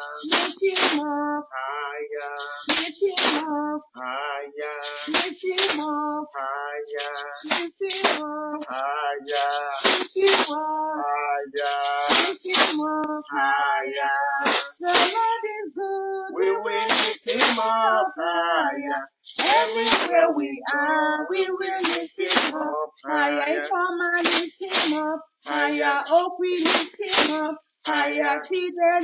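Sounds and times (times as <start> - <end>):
maracas shaking: 0.0 - 1.1, 2.2 - 3.5, 4.6 - 6.1, 6.9 - 8.3, 9.3 - 10.7, 11.6 - 15.5, 16.4 - 17.9, 18.8 - 20.3, 21.3 - 22.7, 24.0 - 25.2, 26.1 - 27.6, 28.6 - 29.0
person singing praise song: 0.0 - 29.0.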